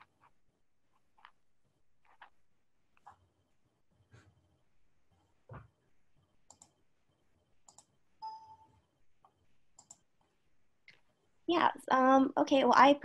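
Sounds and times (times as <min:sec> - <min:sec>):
faint tone: 0:07.8 - 0:09.2.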